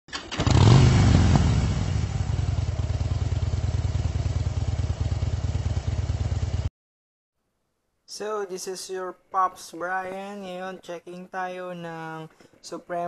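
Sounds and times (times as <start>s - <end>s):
motorcycle engine revving: 0.1s - 6.7s
motorcycle engine idling: 0.4s - 6.7s.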